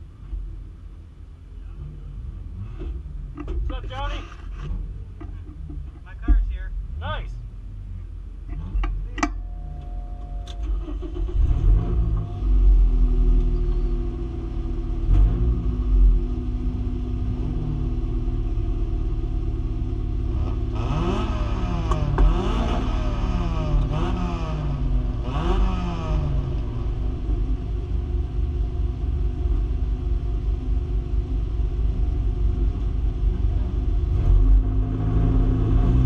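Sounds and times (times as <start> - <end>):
race car engine revving: 1.6 - 27.7.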